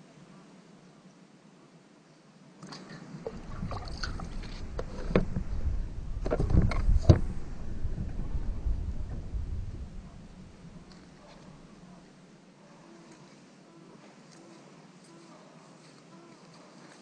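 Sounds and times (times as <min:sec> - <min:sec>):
wind buffeting microphone: 0:03.2 - 0:12.0.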